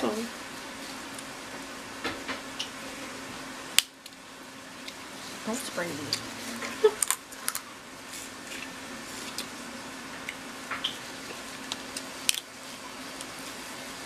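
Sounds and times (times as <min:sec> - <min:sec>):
faint steady hum: 0:00.0 - 0:14.0
crab shell cracking and snapping: 0:07.0 - 0:07.7, 0:11.7 - 0:12.5.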